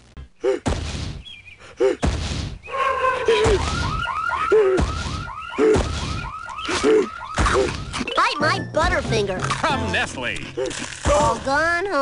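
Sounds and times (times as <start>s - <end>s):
cartoon thuds: 0.5s - 1.3s, 2.0s - 2.6s, 3.4s - 6.8s, 7.4s - 8.0s
fast warbling alarm tone: 3.3s - 8.5s.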